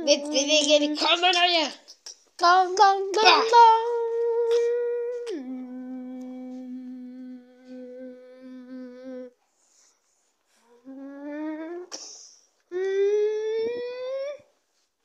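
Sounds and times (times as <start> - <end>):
child humming: 3.2 - 9.4, 10.6 - 12.0, 12.7 - 14.5.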